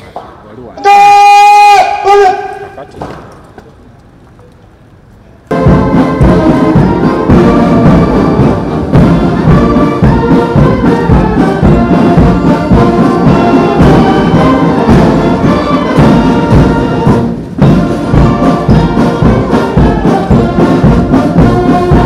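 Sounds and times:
brass band playing: 0:05.5 - 0:22.0.

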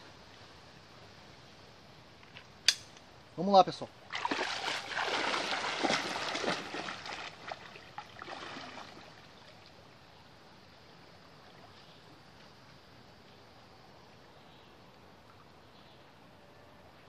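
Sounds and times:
faint steady hiss: 0:00.0 - 0:17.0
water splashing from wading: 0:04.0 - 0:09.8.

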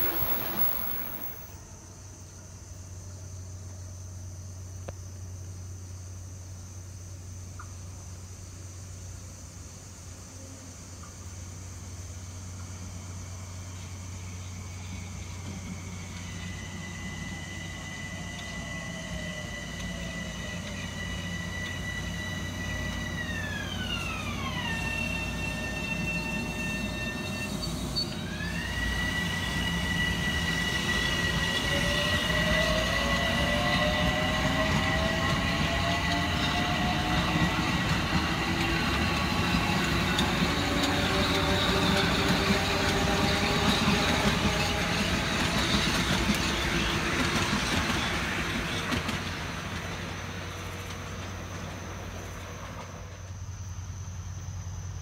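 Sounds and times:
high electric whine: 0:00.0 - 0:01.6
train wheels on rails: 0:00.0 - 0:01.7, 0:11.0 - 0:54.9.

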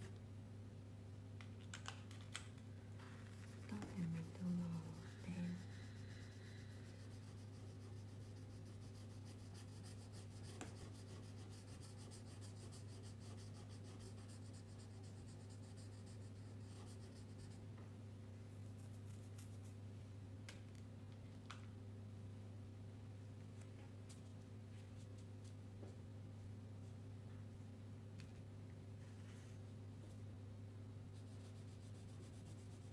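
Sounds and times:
steady low hum: 0:00.0 - 0:32.9
crayon rubbing over paper: 0:03.3 - 0:17.6, 0:31.1 - 0:32.9.

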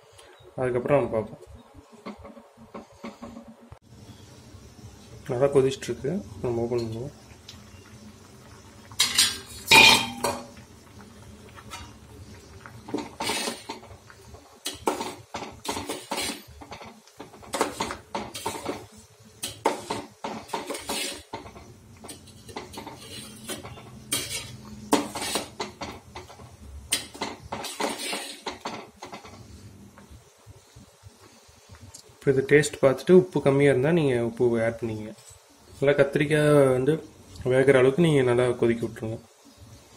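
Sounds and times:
loud metal clank: 0:09.0 - 0:10.5
metal ladle clinking and scraping pot: 0:09.0 - 0:10.6, 0:12.9 - 0:13.9, 0:14.6 - 0:29.5.

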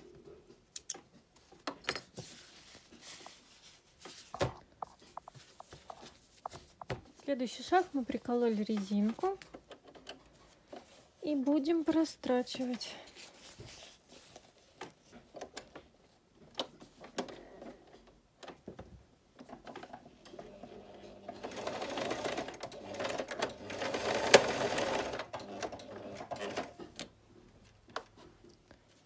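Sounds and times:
sewing machine stitching: 0:19.4 - 0:26.9.

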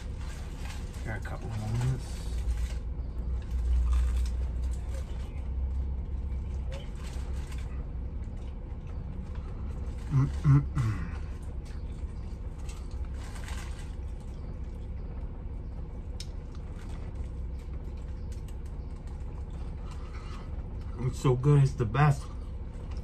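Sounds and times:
bus engine idling: 0:00.0 - 0:23.0
man murmuring: 0:10.1 - 0:11.2.

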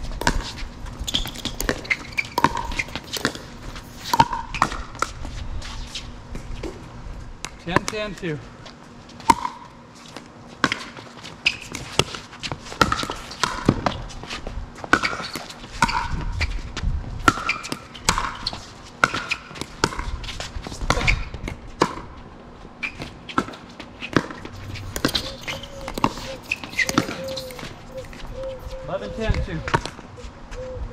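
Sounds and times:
shoes squeaking on court: 0:00.0 - 0:06.9, 0:07.5 - 0:30.8
ball bouncing on court: 0:00.1 - 0:05.2, 0:07.4 - 0:08.3, 0:09.2 - 0:09.8, 0:11.7 - 0:14.0, 0:14.8 - 0:16.4, 0:17.2 - 0:20.1, 0:20.8 - 0:22.1, 0:22.9 - 0:27.8.

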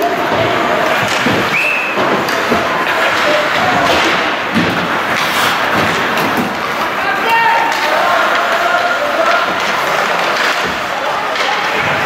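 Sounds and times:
hockey sticks and puck clacking: 0:00.0 - 0:12.0
skates scraping on ice: 0:00.0 - 0:12.0.

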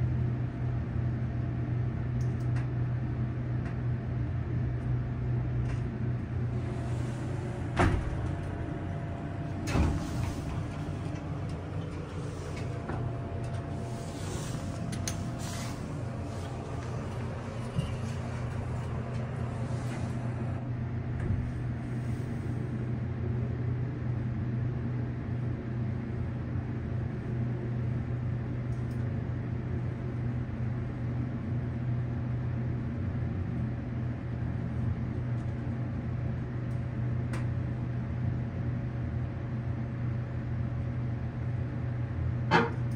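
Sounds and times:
elevator hum and rumble: 0:00.0 - 0:42.9
elevator doors sliding shut: 0:06.4 - 0:22.4.

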